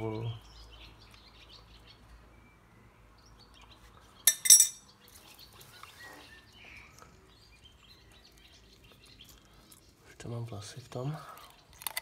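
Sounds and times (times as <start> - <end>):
metal tools clinking: 4.3 - 4.8.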